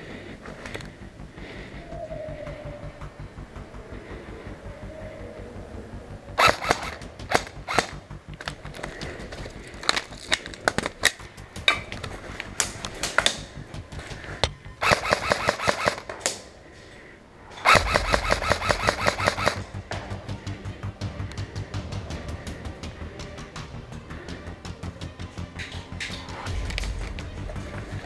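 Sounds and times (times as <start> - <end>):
airsoft rifle firing: 6.4 - 8.0, 14.8 - 16.5, 17.6 - 19.6.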